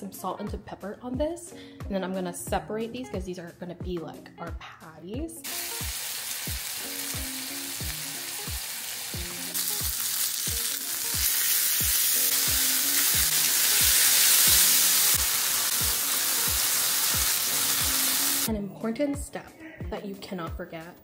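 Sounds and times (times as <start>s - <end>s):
background music with steady beat: 0.0s - 21.0s
meat sizzling in a frying pan: 5.4s - 18.5s.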